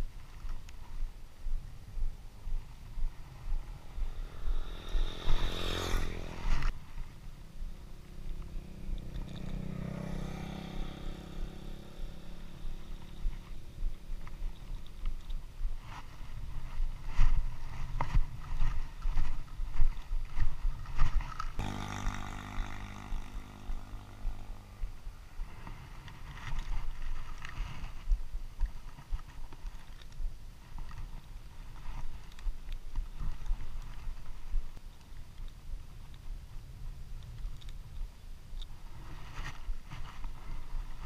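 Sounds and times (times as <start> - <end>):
low wind rumble: 0.0 - 41.0
microphone handling noise: 13.2 - 34.8
steady droning hum: 21.5 - 26.1.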